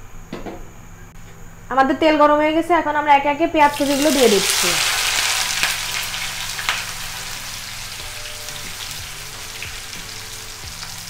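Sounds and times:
onions sizzling in hot oil: 0:03.6 - 0:11.0.

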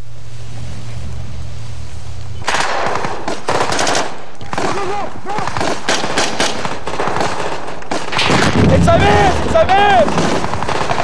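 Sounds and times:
low steady hum: 0:00.0 - 0:11.0
automatic gunfire: 0:02.5 - 0:11.0.

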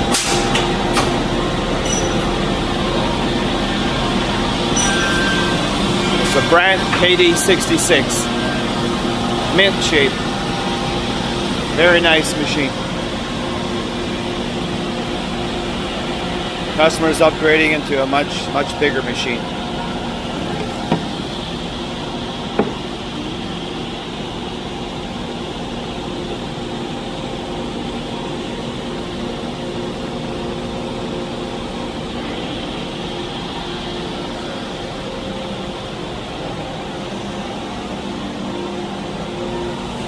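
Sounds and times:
machine running with steady hum: 0:00.0 - 0:40.0
sharp knocks: 0:20.6 - 0:21.2, 0:22.6 - 0:22.8.

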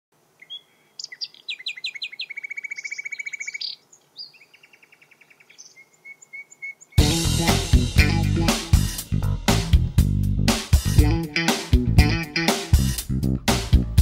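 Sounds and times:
songbird singing: 0:00.2 - 0:08.8.

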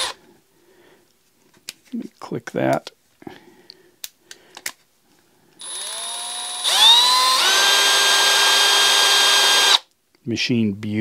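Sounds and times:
cordless drill motor whine: 0:05.6 - 0:09.8.

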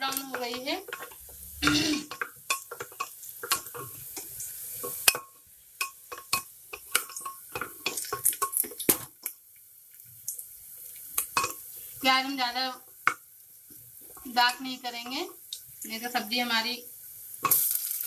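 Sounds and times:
oil crackling: 0:06.1 - 0:12.0, 0:17.4 - 0:18.0.

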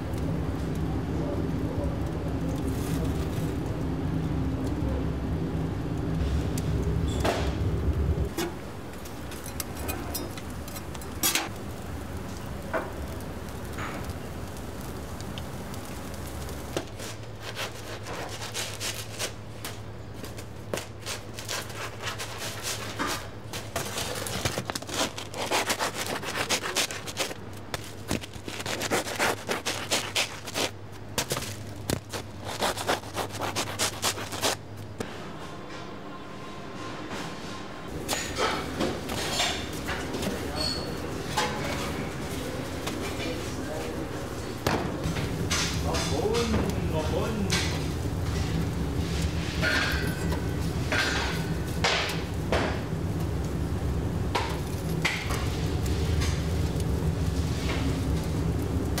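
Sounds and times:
louder low hum: 0:00.0 - 0:09.3
steady low hum: 0:00.0 - 0:59.0
bread knife sawing bread: 0:17.4 - 0:19.4, 0:21.0 - 0:27.4, 0:28.3 - 0:30.8, 0:32.1 - 0:34.6.

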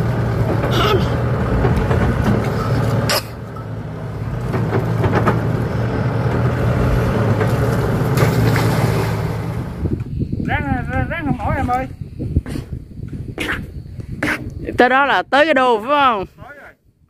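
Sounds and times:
excavator diesel engine running: 0:00.0 - 0:11.1.

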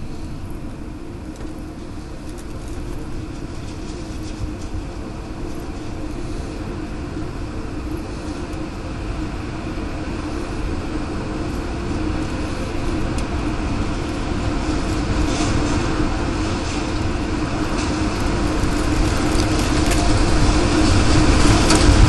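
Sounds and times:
tornado wind rushing: 0:00.0 - 0:22.0.

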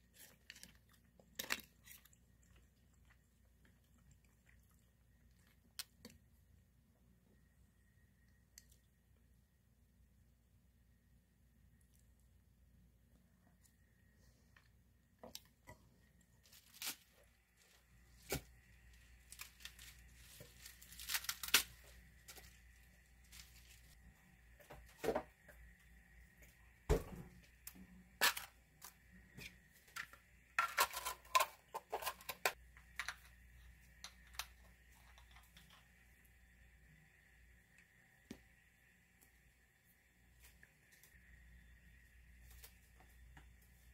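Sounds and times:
faint high whine: 0:06.4 - 0:15.1, 0:32.7 - 0:43.9
lettuce leaves tearing and crackling: 0:16.5 - 0:17.4, 0:19.2 - 0:22.6.

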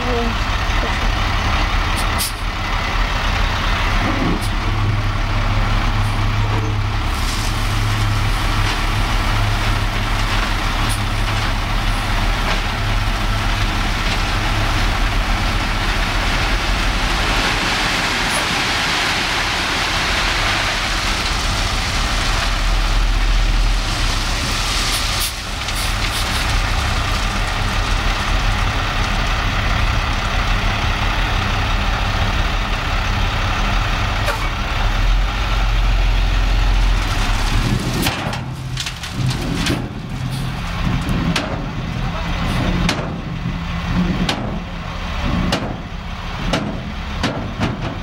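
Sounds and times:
diesel engine running: 0:00.0 - 0:48.0
gravel pouring out: 0:04.7 - 0:32.1, 0:35.2 - 0:43.2.

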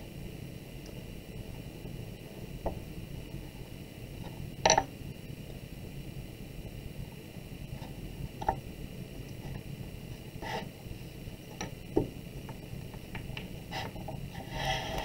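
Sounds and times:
soft rubbing of clay: 0:09.3 - 0:11.0, 0:12.4 - 0:15.0.

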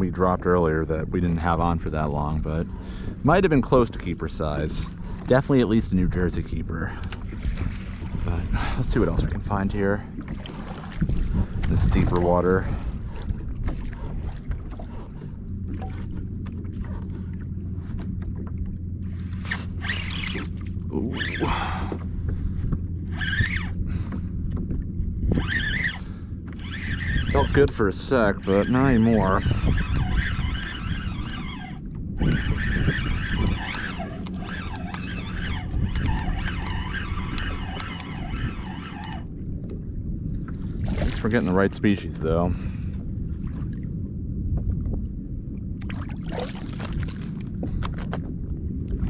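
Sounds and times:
steady low hum: 0:00.0 - 0:49.0
steady low rumble: 0:00.0 - 0:49.0
water lapping at kayak: 0:00.0 - 0:49.0
wind: 0:00.0 - 0:49.0
reel clicks: 0:03.4 - 0:16.5, 0:17.9 - 0:42.3
fishing reel whirring: 0:19.2 - 0:22.0, 0:23.0 - 0:39.4
small ticks: 0:29.9 - 0:39.2.

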